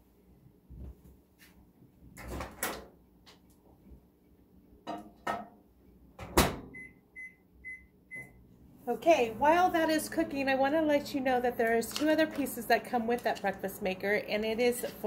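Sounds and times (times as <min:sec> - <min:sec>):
short keypad beeps: 0:06.7 - 0:08.4.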